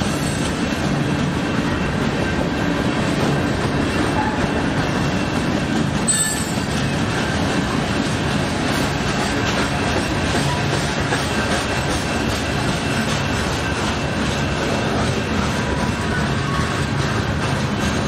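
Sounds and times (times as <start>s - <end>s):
wheels squealing: 0.0s - 7.0s
train wheels rumbling on rails: 0.0s - 18.0s.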